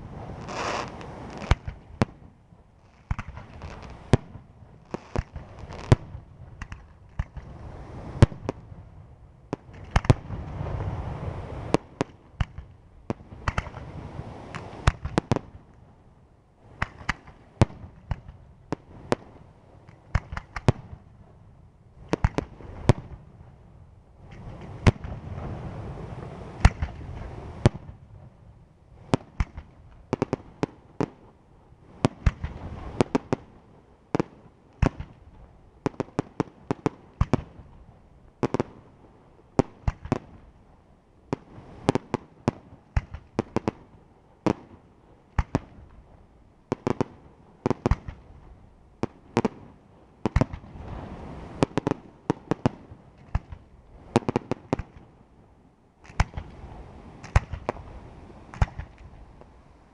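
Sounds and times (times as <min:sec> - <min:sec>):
firework shells bursting: 0:00.4 - 0:01.8, 0:57.2 - 0:57.8.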